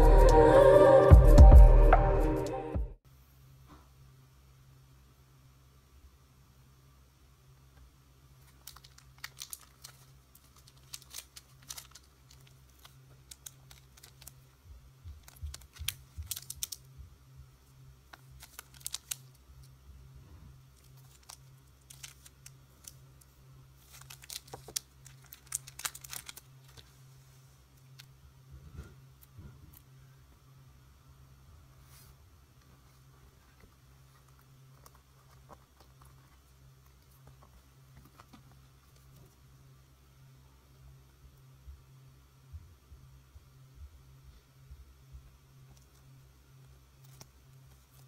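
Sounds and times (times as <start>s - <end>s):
steady low hum: 0.0s - 48.0s
plastic packaging crinkling: 8.4s - 16.9s, 18.1s - 19.7s, 20.8s - 27.0s.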